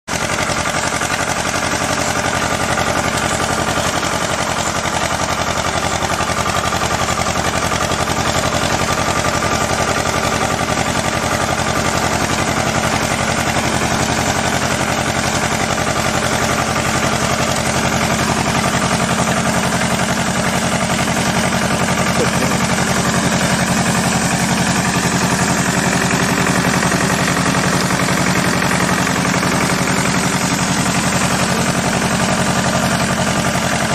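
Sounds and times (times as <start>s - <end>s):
tractor engine running: 0.1s - 33.9s.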